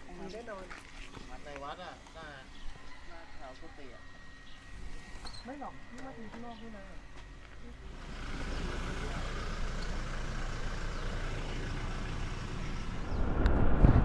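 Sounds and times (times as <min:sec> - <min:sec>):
passing motor traffic: 0:06.4 - 0:14.0.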